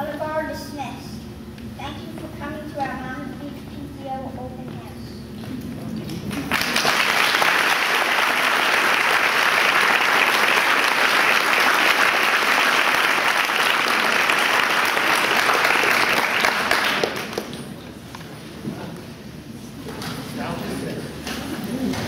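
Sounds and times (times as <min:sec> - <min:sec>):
audience applauding: 0:06.3 - 0:17.7.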